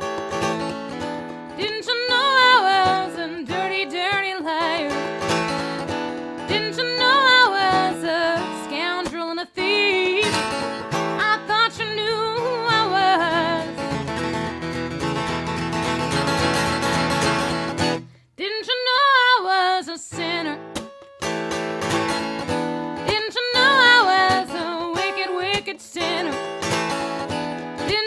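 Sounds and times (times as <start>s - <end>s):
strummed acoustic guitar: 0.0s - 18.2s, 20.1s - 28.0s
woman singing: 1.1s - 14.1s, 18.4s - 20.9s, 22.8s - 26.9s, 27.6s - 28.0s.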